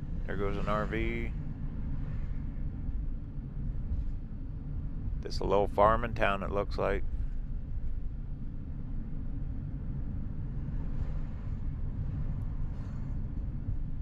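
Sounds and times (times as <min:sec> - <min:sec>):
road and engine rumble: 0:00.0 - 0:01.4.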